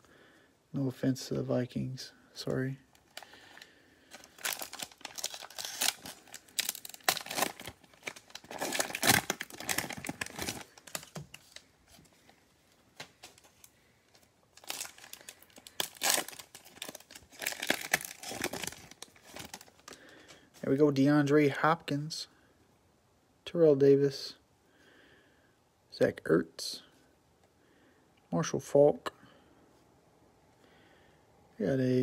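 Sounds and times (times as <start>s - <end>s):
plastic wrapper crinkling and tearing: 2.9s - 12.0s, 13.0s - 20.1s.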